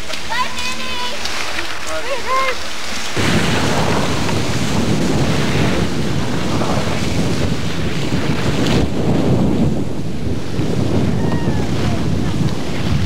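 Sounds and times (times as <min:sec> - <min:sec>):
wind buffeting microphone: 0:03.2 - 0:13.0.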